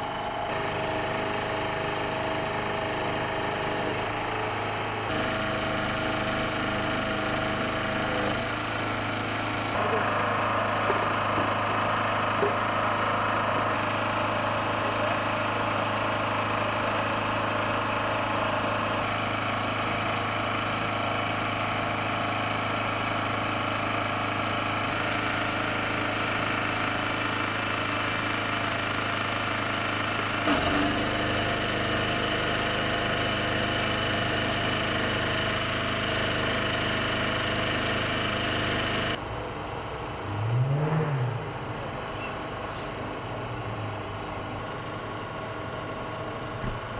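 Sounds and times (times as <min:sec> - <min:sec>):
petrol generator engine running: 0:00.0 - 0:46.9
short hum rising and falling: 0:40.1 - 0:42.6.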